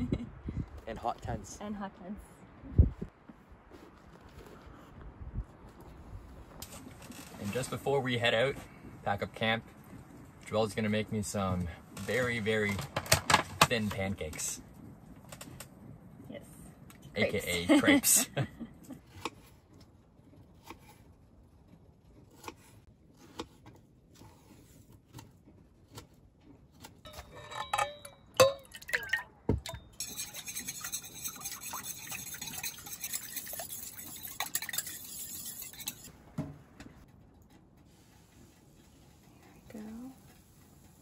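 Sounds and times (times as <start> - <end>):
clinking against metal bowl: 27.1 - 36.1.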